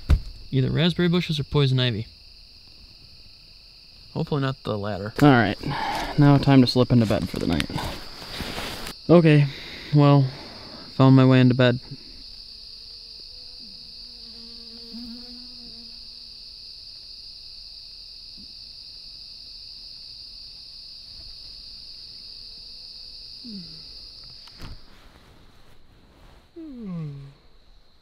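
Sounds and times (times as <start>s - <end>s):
crickets trilling: 0.0s - 28.0s
faint lower tones: 26.5s - 27.6s.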